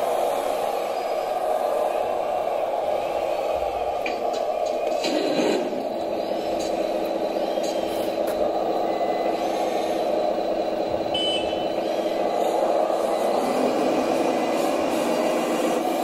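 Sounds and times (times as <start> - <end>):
simulated diesel engine running: 0.0 - 16.0
short high beep: 11.1 - 11.7.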